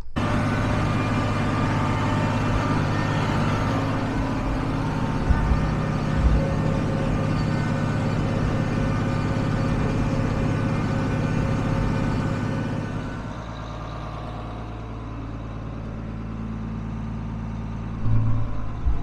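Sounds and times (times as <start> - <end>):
diesel tractor engine running: 0.0 - 19.0.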